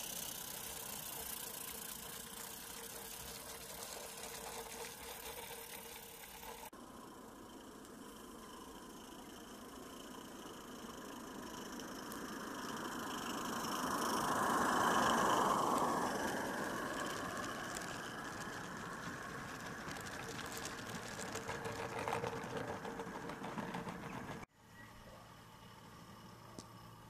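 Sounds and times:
wagons rattling over track: 0.0 - 6.7, 9.7 - 24.5.

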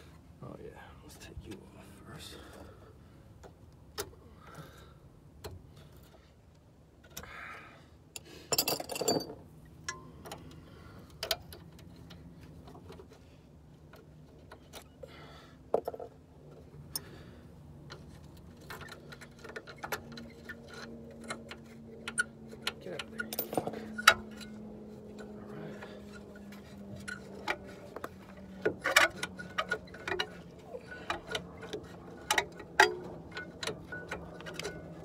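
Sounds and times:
metal parts clattering: 23.0 - 24.5.

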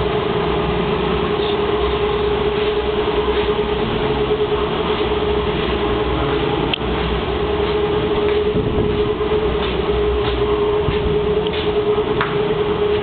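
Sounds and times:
steady hum: 0.0 - 13.0
strong wind buffeting microphone: 7.2 - 13.0.

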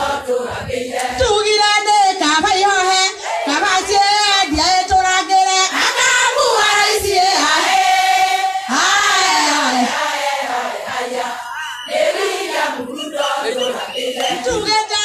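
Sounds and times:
women singing in chorus: 0.0 - 15.0.

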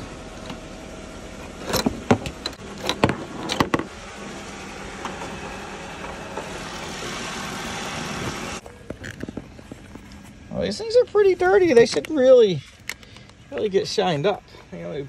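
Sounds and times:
steady background noise: 0.0 - 15.0
metal latch clicks and clunks: 1.4 - 3.9.

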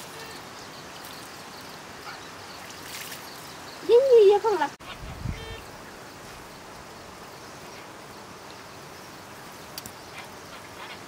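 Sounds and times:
outdoor ambient hiss: 0.0 - 11.0.

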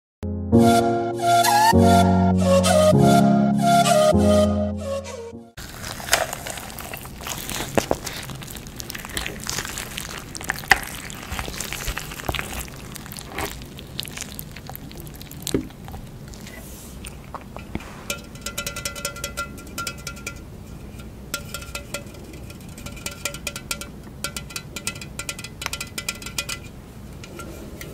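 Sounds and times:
chicken skin crackling and tearing: 5.6 - 17.5.

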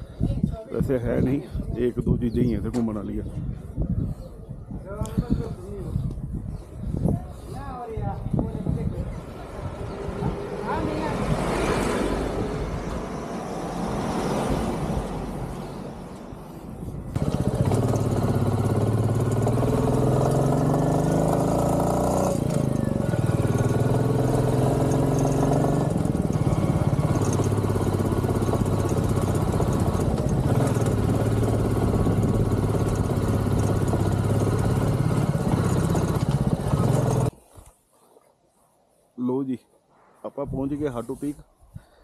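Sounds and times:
motorcycle engine running: 17.1 - 37.3.

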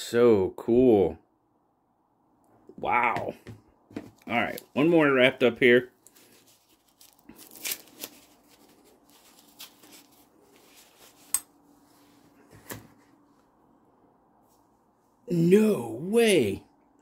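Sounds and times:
tissue paper rustling: 6.0 - 13.4.

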